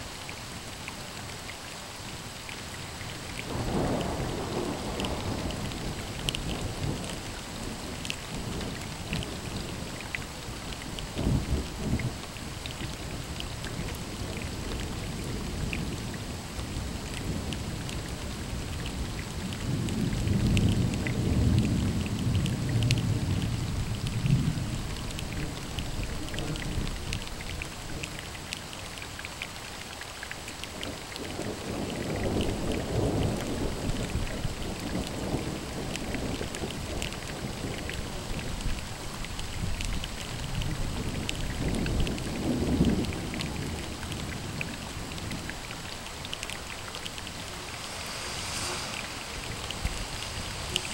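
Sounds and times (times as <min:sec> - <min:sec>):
steady rain: 0:00.0 - 0:50.9
thunder rumbling: 0:03.4 - 0:10.0, 0:41.6 - 0:50.9.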